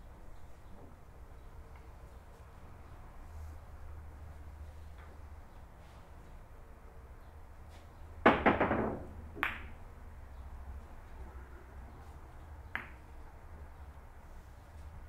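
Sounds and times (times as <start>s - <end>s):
billiard balls clacking: 8.2s - 9.8s.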